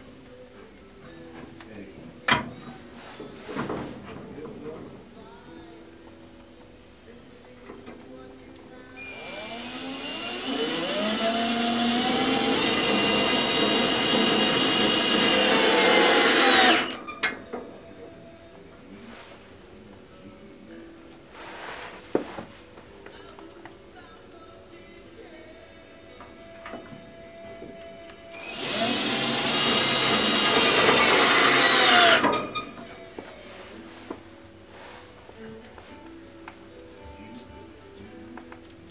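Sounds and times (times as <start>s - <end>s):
cordless drill whirring: 9.0s - 17.0s, 28.3s - 32.3s.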